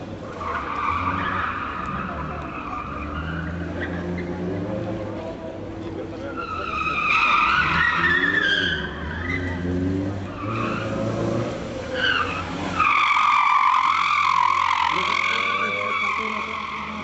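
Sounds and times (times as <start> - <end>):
tyres squealing: 6.2 - 17.0.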